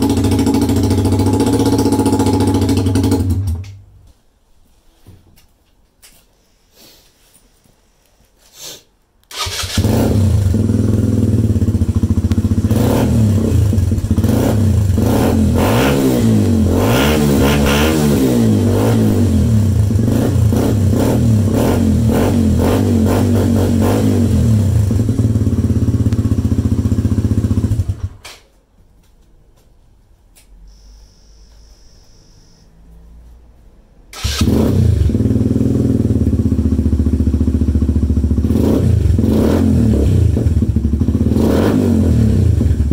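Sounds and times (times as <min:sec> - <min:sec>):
motorcycle engine revving: 0:00.0 - 0:03.6, 0:09.3 - 0:28.2, 0:34.1 - 0:42.9
faint high tone: 0:30.6 - 0:32.9.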